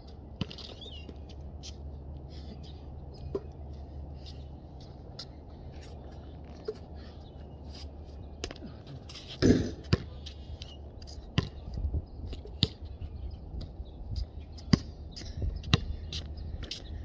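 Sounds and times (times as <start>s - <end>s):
basketball bouncing on concrete: 9.4s - 10.2s, 11.3s - 11.6s, 12.5s - 12.8s, 14.6s - 14.9s, 15.6s - 15.9s.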